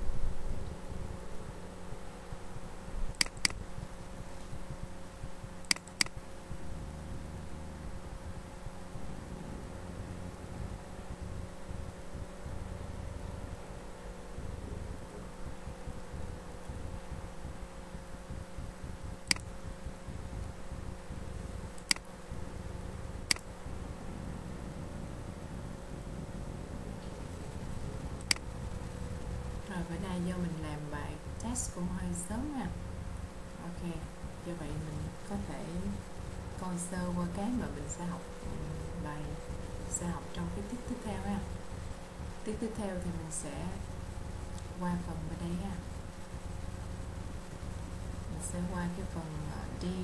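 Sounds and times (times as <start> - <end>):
steady low hum: 0.0 - 50.0
computer mouse clicks: 3.1 - 3.6, 5.6 - 6.2, 19.2 - 19.6, 21.8 - 22.1, 23.3 - 23.5.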